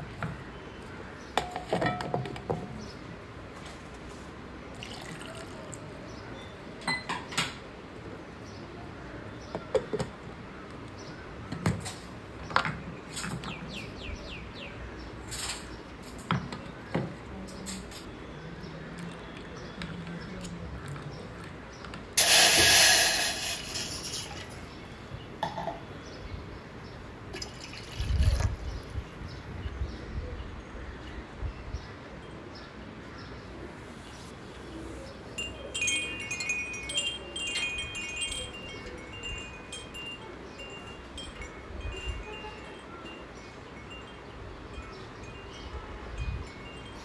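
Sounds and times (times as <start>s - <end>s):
clicks and knocks of kitchenware: 1.4s - 2.7s, 6.8s - 7.6s, 25.4s - 25.8s.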